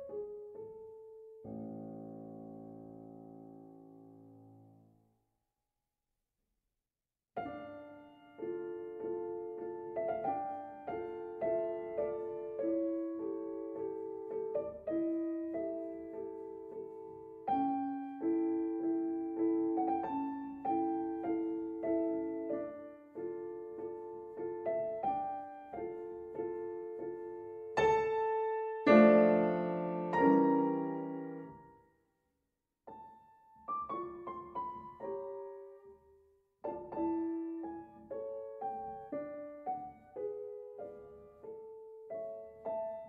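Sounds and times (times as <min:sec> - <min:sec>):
gentle piano music: 0:00.0 - 0:05.0, 0:07.4 - 0:32.0, 0:32.9 - 0:43.0.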